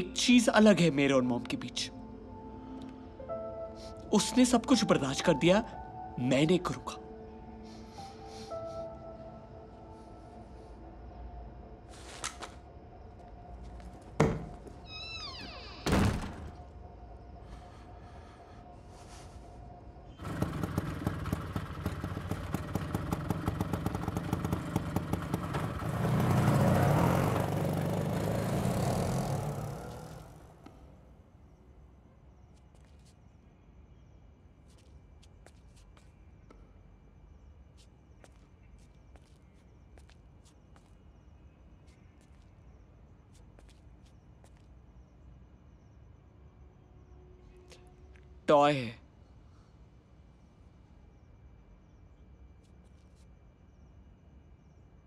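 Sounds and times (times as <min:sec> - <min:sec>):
door creaking: 0:14.1 - 0:16.7
door slamming: 0:14.2 - 0:16.6
auto-rickshaw engine driving off: 0:20.2 - 0:31.0.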